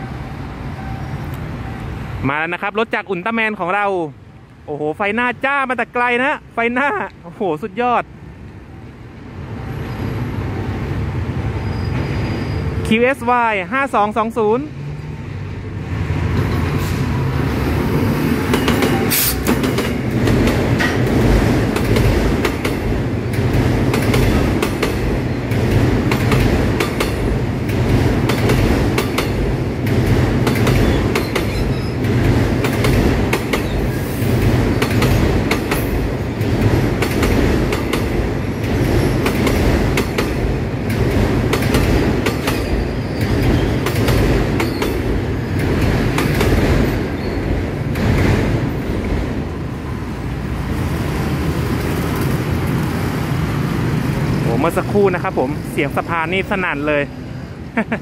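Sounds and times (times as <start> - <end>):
train rumbling: 14.7 - 58.0.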